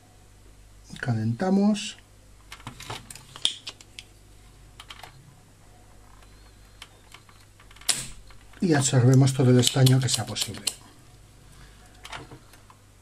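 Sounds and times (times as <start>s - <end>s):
soldering tool clicks and taps: 9.1s - 10.8s.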